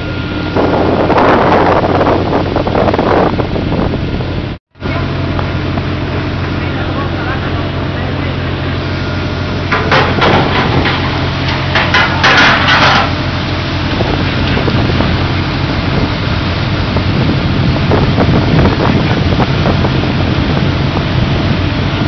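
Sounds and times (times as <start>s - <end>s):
deck machinery humming: 0.0s - 22.0s
fish clattering into metal bins: 9.7s - 13.3s.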